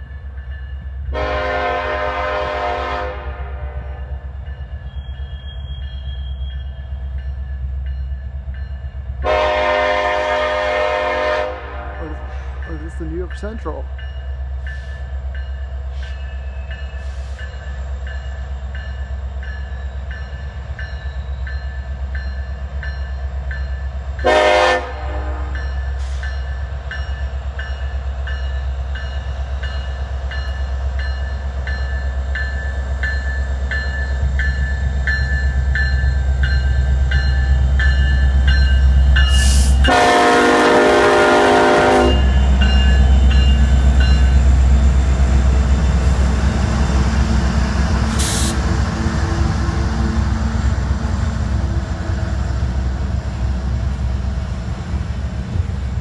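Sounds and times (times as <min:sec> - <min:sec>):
train air horn blast: 0:01.1 - 0:04.1, 0:09.2 - 0:12.6, 0:24.2 - 0:26.2, 0:39.3 - 0:42.3, 0:48.1 - 0:48.6.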